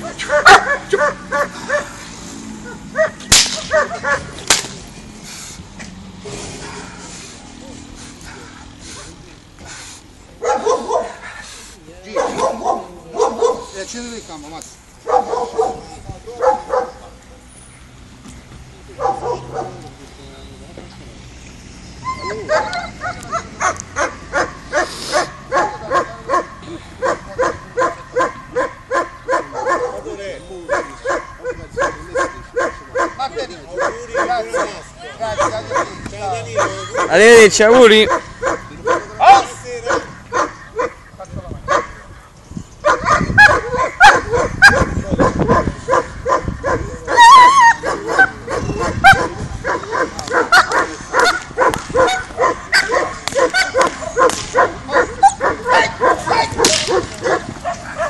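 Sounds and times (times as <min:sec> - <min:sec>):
dog barking rapidly: 0:00.1 - 0:02.0, 0:02.6 - 0:04.4, 0:10.4 - 0:11.2, 0:12.1 - 0:13.7, 0:15.0 - 0:17.2, 0:19.0 - 0:19.8, 0:22.5 - 0:30.1, 0:30.7 - 0:42.1, 0:42.8 - 0:58.0
dog whining high-pitched: 0:22.0 - 0:23.4, 0:46.6 - 0:49.3.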